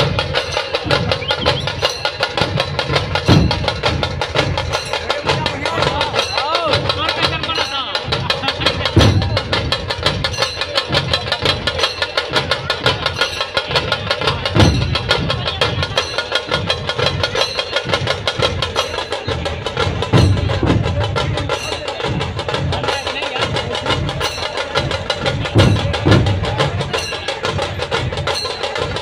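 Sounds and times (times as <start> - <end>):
dhol drums fast rhythm: 0.0 - 29.0
heavy bass drum hits: 2.9 - 4.8.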